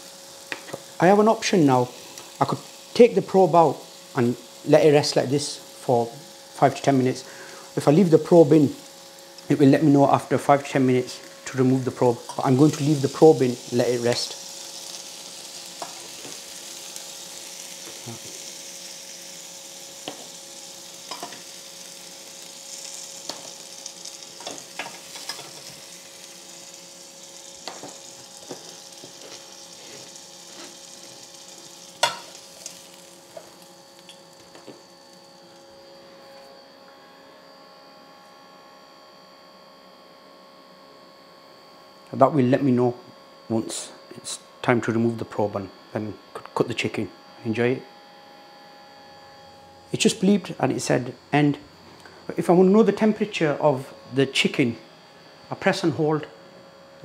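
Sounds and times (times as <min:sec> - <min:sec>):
chicken sizzling on a grill: 0:00.0 - 0:36.3
steady hum: 0:00.0 - 0:57.0.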